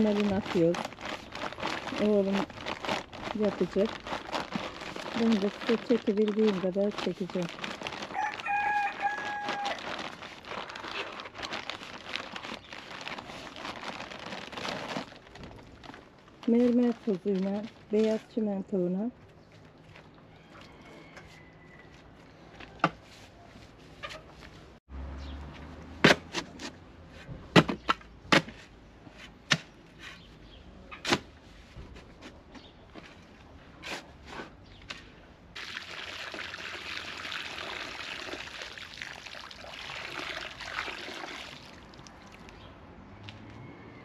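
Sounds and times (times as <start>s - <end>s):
water pouring into cement mix: 35.6s - 42.6s.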